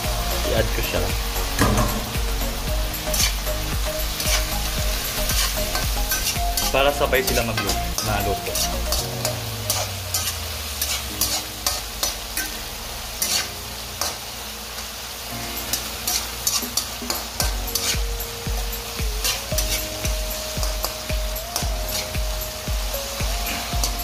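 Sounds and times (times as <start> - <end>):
food sizzling in a frying pan: 0.0 - 24.0
spatula scraping a pan: 4.2 - 6.7, 7.6 - 12.6, 13.2 - 14.2, 15.8 - 18.1, 21.9 - 22.2.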